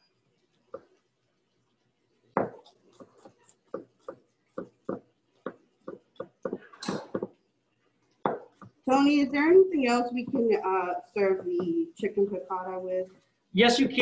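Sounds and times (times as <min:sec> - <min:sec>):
knife chopping on cutting board: 0:02.4 - 0:07.4, 0:08.2 - 0:08.8.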